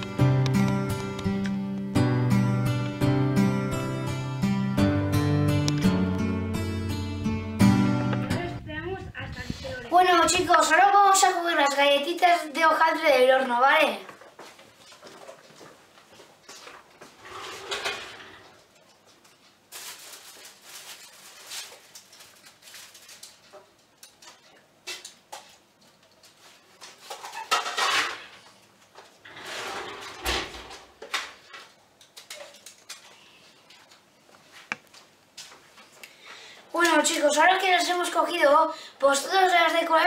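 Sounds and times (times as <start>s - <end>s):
oven door opening: 29.3s - 31.0s.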